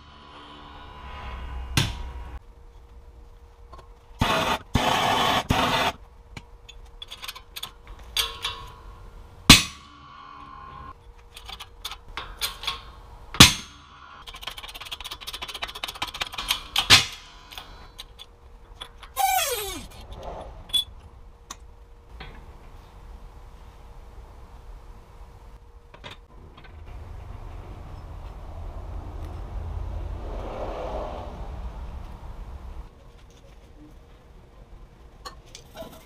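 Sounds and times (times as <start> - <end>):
loud sharp bangs of bearing breaking: 9.5 - 10.1, 13.4 - 14.1
short falling squeal: 19.2 - 20.0.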